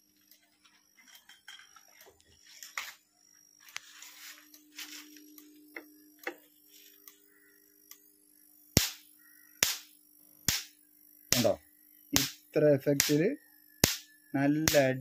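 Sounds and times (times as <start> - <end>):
energizer hum: 0.0 - 15.0
faint ticks: 4.5 - 8.1
electric fence snapping cracks: 8.7 - 11.6, 12.2 - 12.4, 13.0 - 13.2, 13.8 - 14.9.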